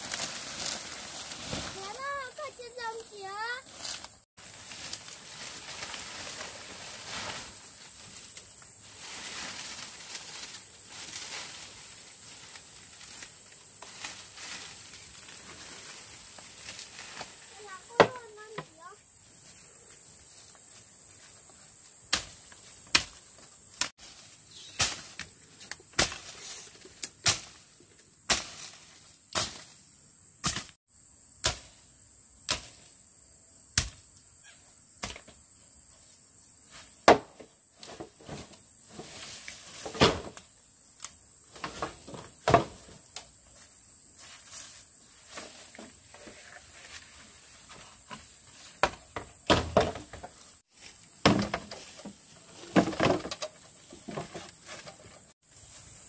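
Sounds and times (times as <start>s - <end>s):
high insect drone: 0.0s - 56.0s
machete chopping through brush: 22.1s - 23.2s, 23.8s - 27.7s, 28.3s - 29.8s, 30.4s - 30.8s, 31.4s - 31.8s, 32.5s - 32.8s, 33.8s - 34.0s.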